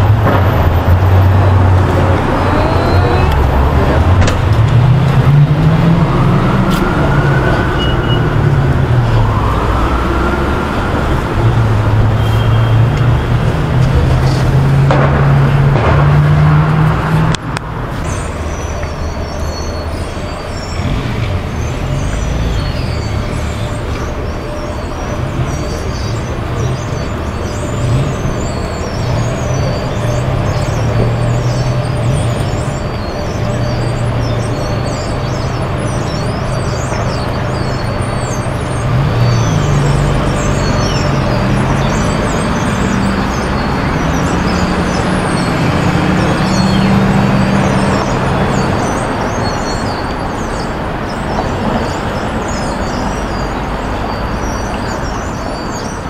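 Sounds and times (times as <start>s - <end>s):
rising and falling whine: 0.0s - 12.2s
vehicle engines passing: 0.0s - 56.0s.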